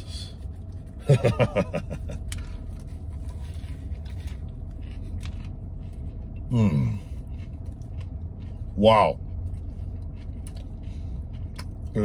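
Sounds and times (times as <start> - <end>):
truck cab rumble: 0.0 - 12.0
chewing clicks: 9.3 - 12.0.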